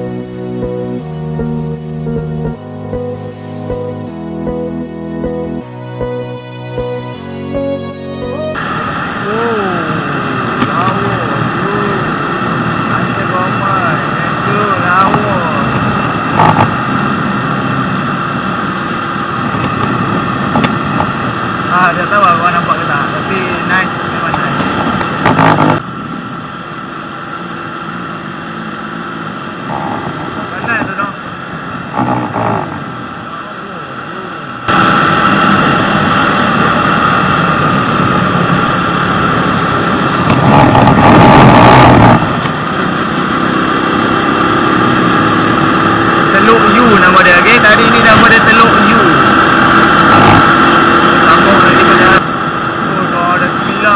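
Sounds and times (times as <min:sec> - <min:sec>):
wind and road noise: 0:00.0 - 0:53.9
moped engine running: 0:08.5 - 0:53.9
wind on microphone: 0:15.2 - 0:21.6, 0:24.3 - 0:26.3, 0:29.6 - 0:31.1, 0:31.7 - 0:33.2, 0:34.7 - 0:46.2, 0:49.2 - 0:51.2.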